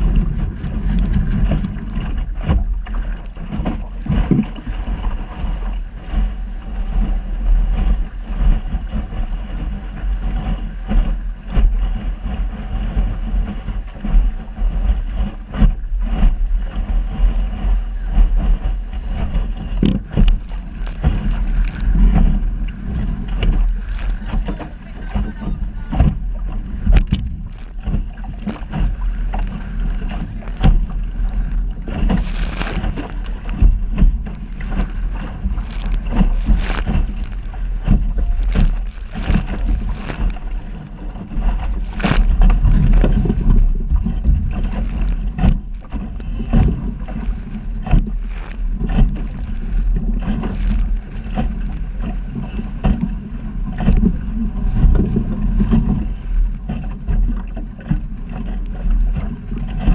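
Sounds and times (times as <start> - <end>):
waves slapping against hull: 0.0 - 59.9
wind buffeting microphone: 0.0 - 59.9.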